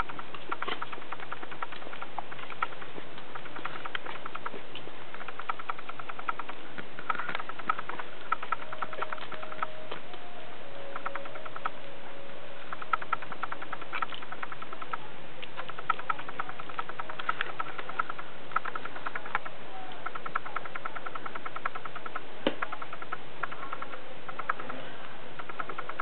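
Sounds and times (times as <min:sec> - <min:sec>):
puppies squeaking: 0:05.2 - 0:10.2, 0:10.8 - 0:11.9.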